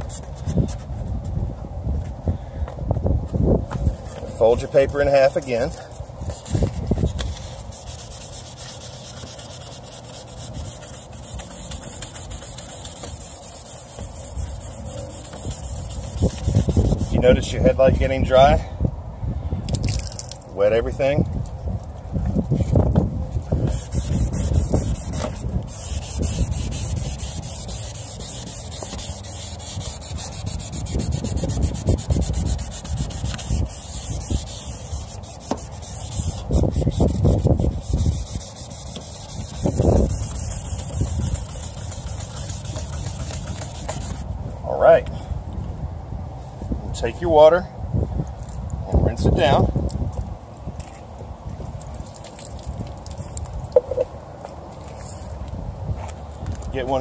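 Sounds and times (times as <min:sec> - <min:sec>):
sandpaper rubbing on plastic: 0:00.0 - 0:01.3, 0:03.8 - 0:18.1, 0:22.5 - 0:44.3.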